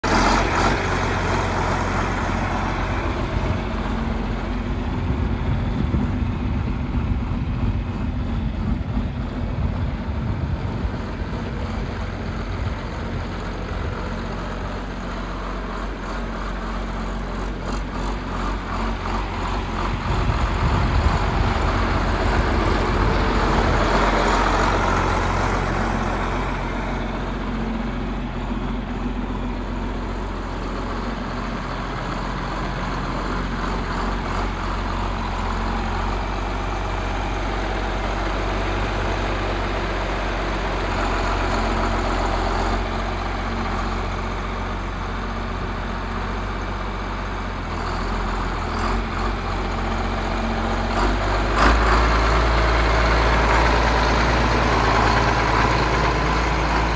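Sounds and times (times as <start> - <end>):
tractor diesel engine running: 0.0 - 56.9.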